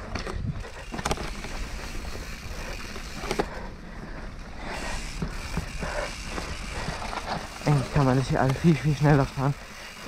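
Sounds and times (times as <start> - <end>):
bike tyres rolling on dirt: 0.0 - 10.0
bike knocking on bumps: 5.2 - 8.9.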